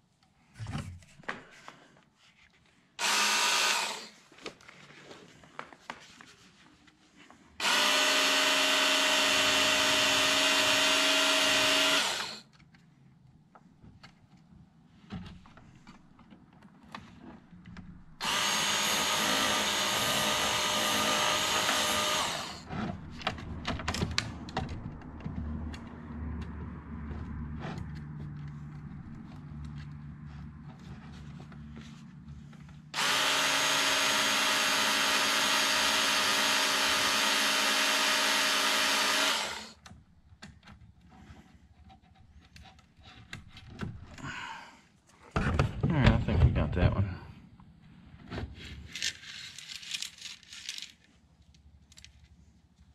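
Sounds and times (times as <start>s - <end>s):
electric belt grinder grinding: 3.0s - 4.2s, 7.6s - 12.4s, 18.2s - 22.7s, 33.0s - 39.8s.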